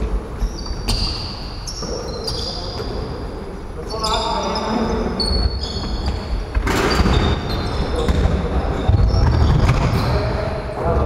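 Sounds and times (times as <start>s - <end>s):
basketball bouncing on wooden floor: 5.9s - 10.0s.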